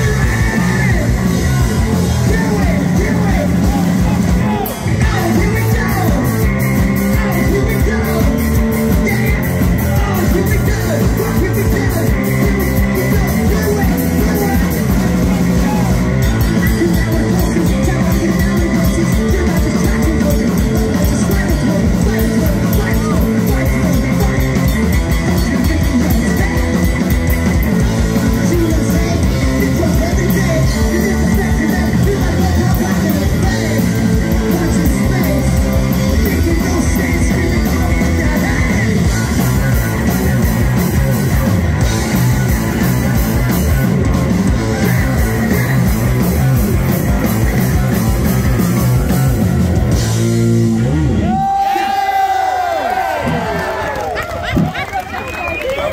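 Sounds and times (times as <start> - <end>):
person singing into a microphone: 0.0 - 27.0, 28.1 - 41.2
drum kit: 0.0 - 53.8
electric guitar: 0.0 - 55.9.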